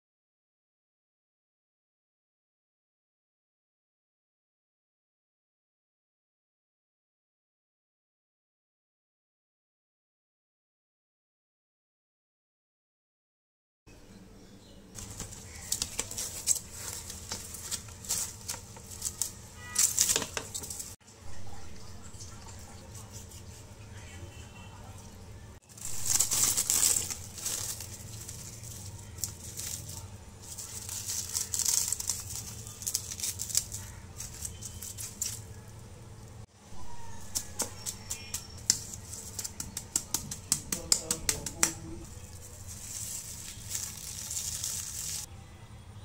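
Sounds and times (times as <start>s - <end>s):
cling film crinkling: 15.0s - 21.0s, 25.7s - 36.4s, 37.1s - 45.3s.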